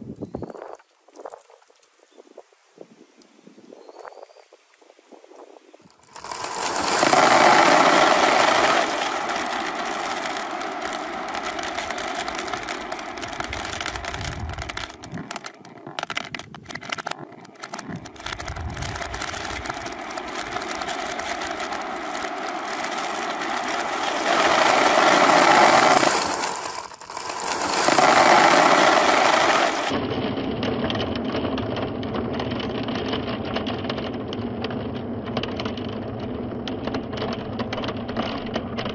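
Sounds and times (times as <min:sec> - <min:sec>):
marbles clicking together: 0:05.9 - 0:30.0
marbles rolling down plastic chutes: 0:05.9 - 0:30.0.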